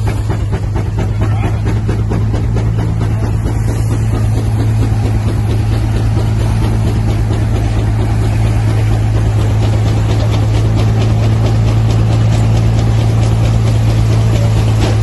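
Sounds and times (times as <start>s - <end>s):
steam engine driving threshing machine: 0.0s - 15.0s.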